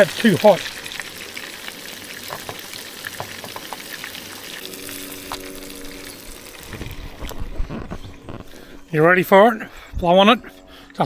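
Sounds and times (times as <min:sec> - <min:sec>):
fish sizzling in oil: 0:00.0 - 0:08.9
low rumble: 0:04.6 - 0:10.2.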